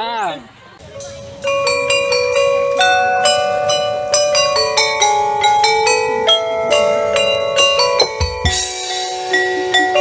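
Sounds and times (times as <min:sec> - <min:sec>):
bell-like melody: 0:00.8 - 0:10.0.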